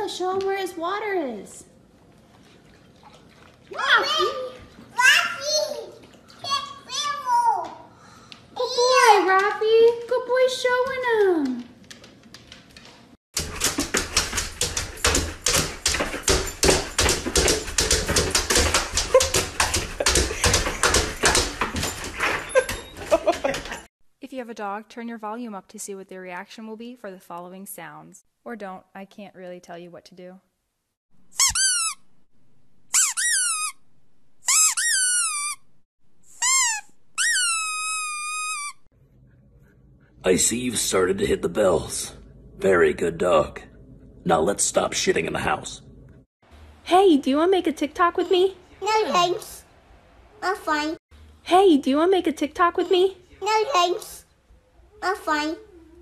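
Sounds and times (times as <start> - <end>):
dog claws scratching glass door: 13.4 - 23.8
high-pitched sliding squeaks: 31.4 - 32.0, 32.9 - 33.8, 34.5 - 35.7, 36.3 - 38.9.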